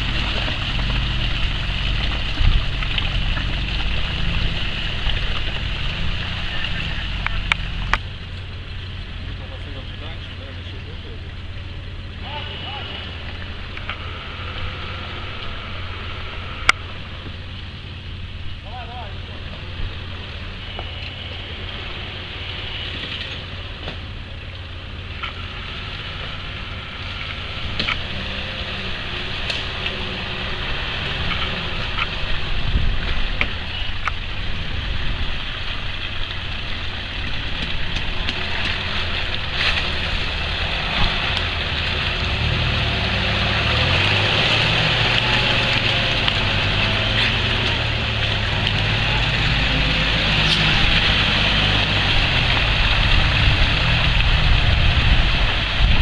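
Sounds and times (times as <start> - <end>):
suv engine running: 0.0 - 56.0
tyres splashing through mud: 0.0 - 56.0.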